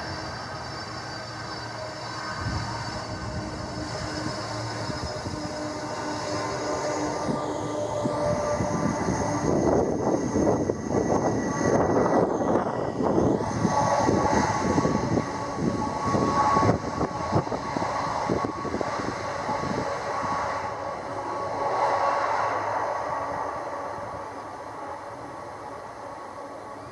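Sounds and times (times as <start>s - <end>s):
jet engines rumbling and whining: 0.0s - 26.9s.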